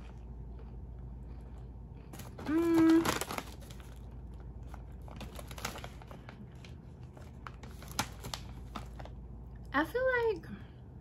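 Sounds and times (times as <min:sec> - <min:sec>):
closed-mouth hum: 0:00.0 - 0:05.0
person chewing crunchy chip: 0:00.0 - 0:06.5.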